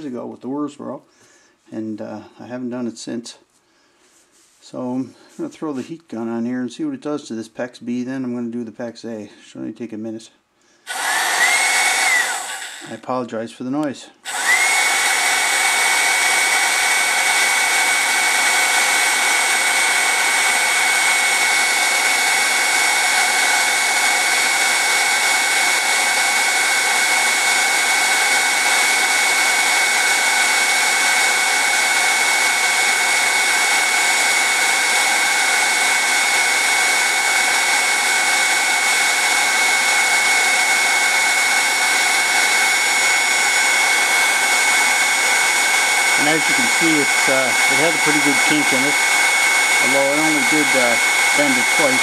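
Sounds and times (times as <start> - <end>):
heat gun fan whine: 10.9 - 13.0, 14.2 - 52.0.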